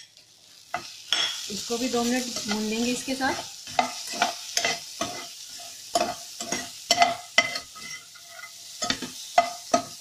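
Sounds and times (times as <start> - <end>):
vegetables sizzling: 0.0 - 10.0
metal spoon scraping a frying pan: 2.2 - 10.0.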